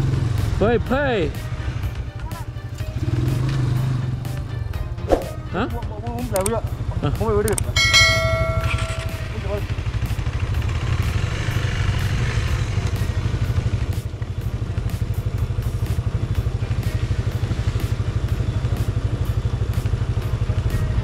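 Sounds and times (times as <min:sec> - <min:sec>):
motorcycle engine at low revs: 0:00.0 - 0:21.0.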